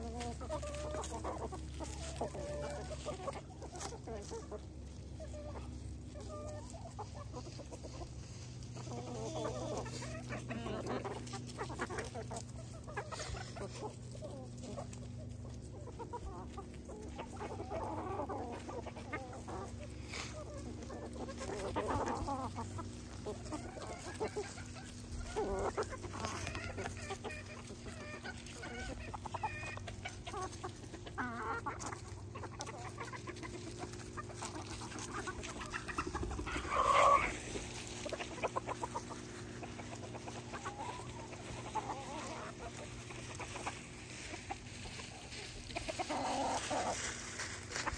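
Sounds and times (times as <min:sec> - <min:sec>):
chickens clucking: 0:00.0 - 0:47.9.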